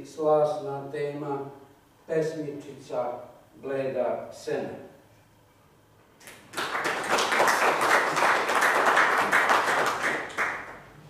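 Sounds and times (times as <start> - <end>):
audience applauding: 6.2 - 10.8.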